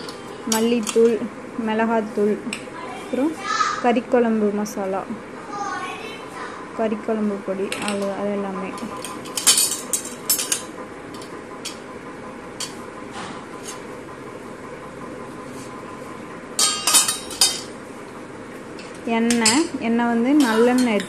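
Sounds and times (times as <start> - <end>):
steel cups and plates clinking: 8.8 - 11.8, 16.6 - 17.8, 20.3 - 21.0.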